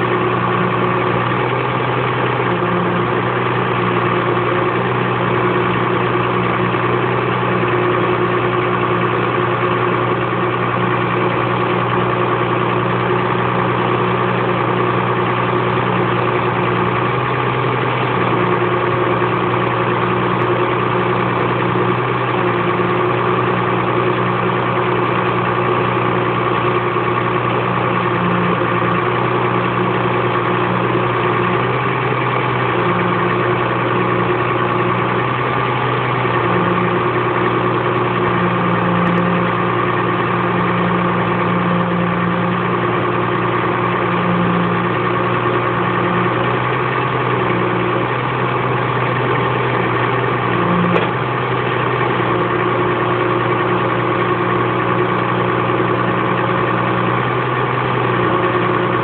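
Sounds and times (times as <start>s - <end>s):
diesel engine running: 0.0s - 59.0s
hydraulic crane loading logs: 0.0s - 59.0s.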